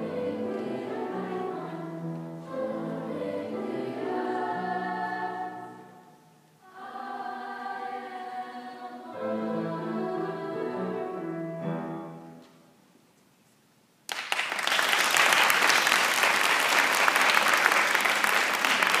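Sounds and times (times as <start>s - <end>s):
choir singing a held chord: 0.0s - 12.2s
audience applause: 14.1s - 19.0s.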